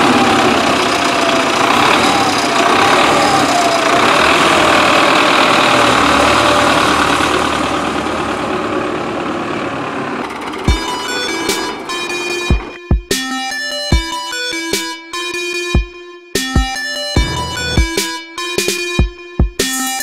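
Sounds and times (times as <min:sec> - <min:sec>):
tractor diesel engine running: 0:00.0 - 0:13.1, 0:17.2 - 0:18.2.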